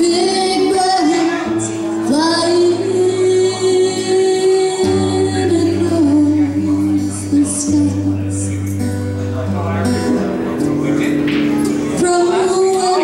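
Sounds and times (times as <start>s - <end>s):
woman singing slow melody: 0.0s - 8.6s, 12.0s - 13.0s
acoustic guitar: 0.0s - 13.0s.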